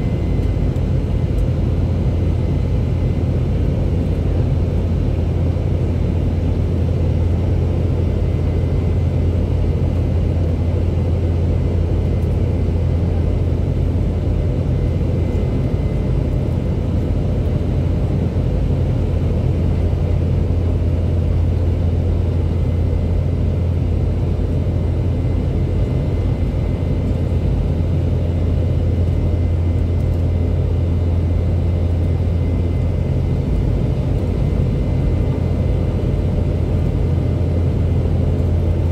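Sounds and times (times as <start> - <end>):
airplane cabin rumble: 0.0 - 38.9.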